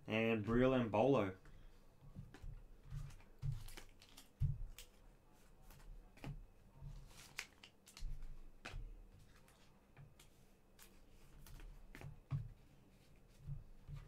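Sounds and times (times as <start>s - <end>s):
trading cards rustling and clicking: 2.2s - 6.3s, 6.9s - 12.2s.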